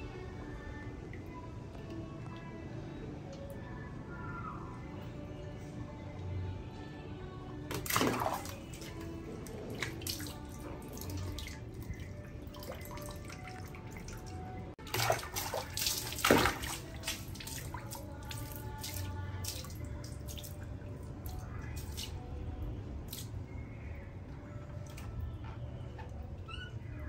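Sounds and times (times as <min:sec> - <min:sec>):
background music: 0:00.0 - 0:27.0
water splashing and dripping: 0:07.7 - 0:22.2.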